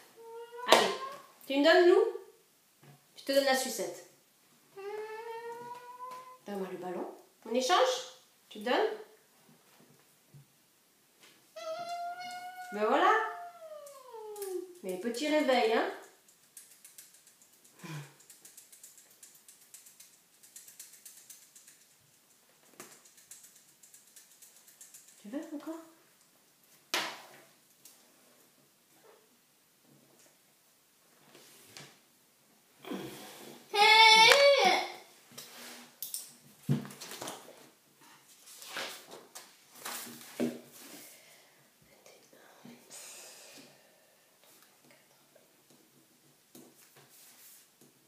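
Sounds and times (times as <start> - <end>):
girl breathing sounds: 17.8 - 18.3.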